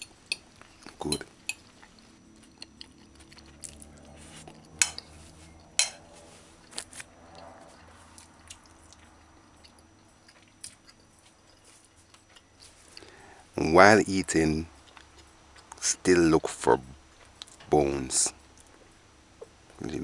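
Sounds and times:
soft chewing: 0:00.3 - 0:13.4, 0:14.6 - 0:17.7
fork clinking against plate: 0:04.8 - 0:05.1, 0:05.7 - 0:06.1.

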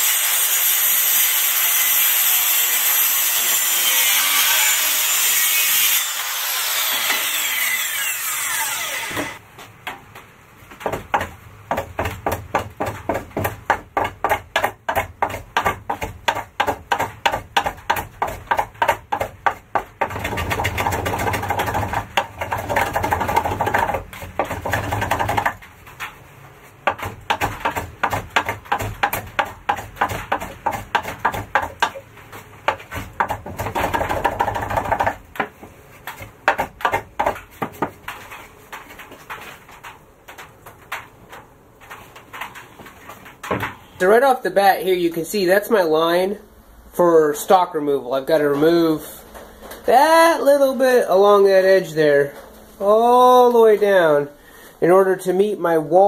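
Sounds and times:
hand saw cutting wood: 0:00.0 - 0:09.4.

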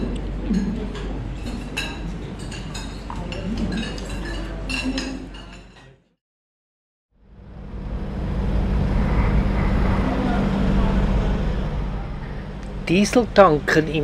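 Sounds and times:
cutlery clinking on china plates: 0:00.5 - 0:06.0.

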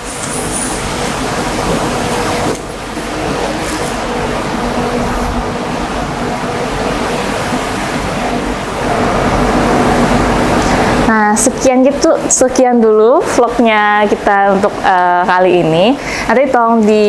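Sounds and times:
steady rushing noise: 0:00.0 - 0:12.5.

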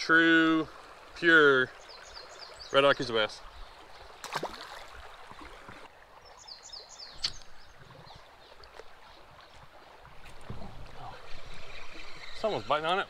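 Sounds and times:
flowing water: 0:00.0 - 0:13.0
bird chirping: 0:01.8 - 0:03.8, 0:06.2 - 0:09.6.

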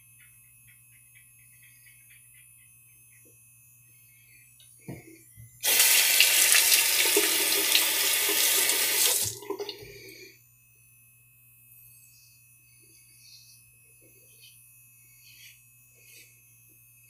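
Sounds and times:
sink tap running: 0:05.6 - 0:09.9.

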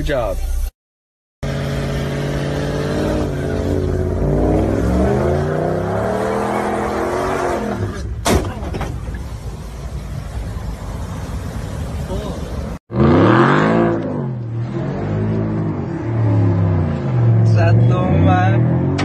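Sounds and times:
truck engine revving: 0:01.4 - 0:08.1, 0:12.0 - 0:19.0.

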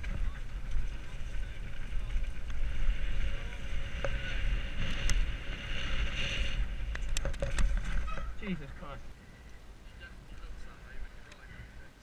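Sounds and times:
bike clicks and rattles: 0:00.0 - 0:08.4
tyres rolling over loose dirt: 0:00.0 - 0:09.0
wind buffeting camera: 0:00.0 - 0:12.0.

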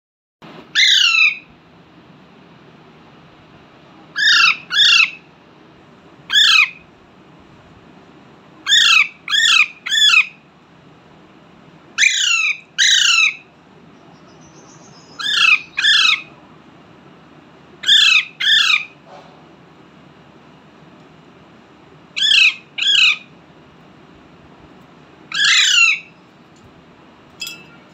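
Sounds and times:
parakeet squawking: 0:00.8 - 0:01.5, 0:04.2 - 0:05.2, 0:06.3 - 0:06.8, 0:08.7 - 0:10.4, 0:12.0 - 0:13.4, 0:15.1 - 0:16.3, 0:17.8 - 0:19.0, 0:22.2 - 0:23.3, 0:25.3 - 0:26.1.

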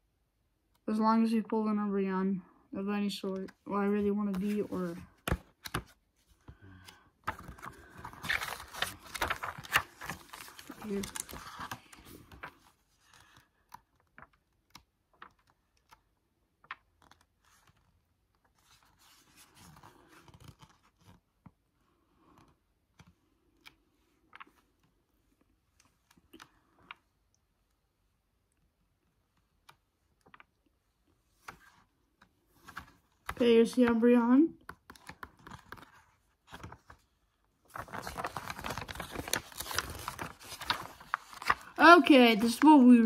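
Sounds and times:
paper pages turning: 0:03.3 - 0:21.3, 0:31.4 - 0:34.0, 0:34.6 - 0:43.0.

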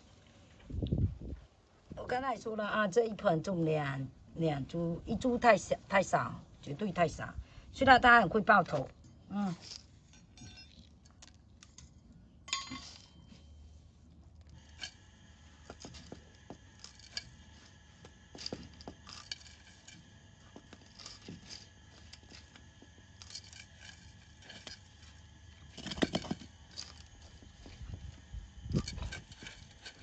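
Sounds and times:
ringing clink on ceramic: 0:10.1 - 0:10.8, 0:12.5 - 0:13.3
soil and granules falling into pot: 0:14.4 - 0:30.0.

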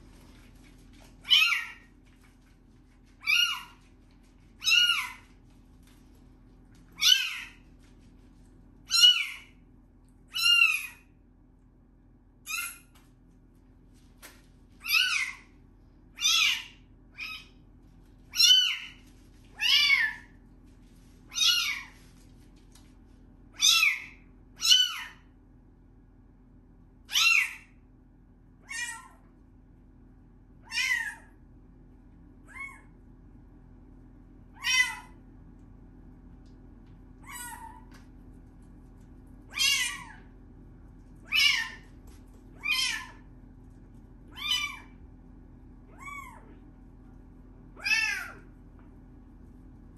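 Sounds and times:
kitten meowing: 0:19.6 - 0:20.3, 0:30.7 - 0:31.3, 0:34.6 - 0:35.2, 0:39.5 - 0:40.2, 0:41.3 - 0:41.8, 0:42.6 - 0:43.2, 0:44.3 - 0:44.9, 0:47.8 - 0:48.4.

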